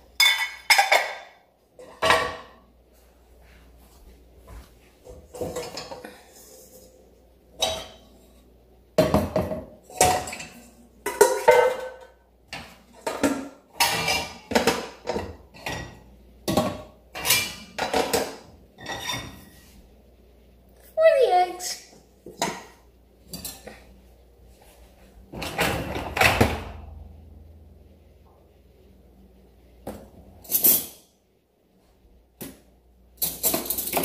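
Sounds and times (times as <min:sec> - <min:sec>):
dishes and cutlery clattering: 0:00.1 - 0:02.6, 0:05.0 - 0:08.2, 0:09.0 - 0:19.6, 0:22.3 - 0:23.9, 0:30.4 - 0:31.1, 0:33.2 - 0:34.0.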